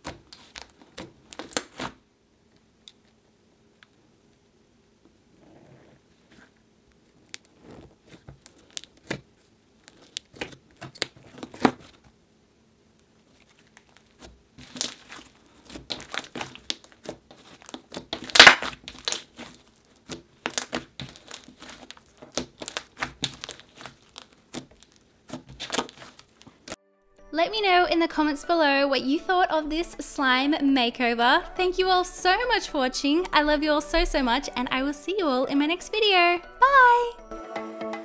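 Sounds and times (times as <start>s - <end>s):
slime crackling and squelching: 0.0s - 2.0s, 6.2s - 12.1s, 13.2s - 26.8s.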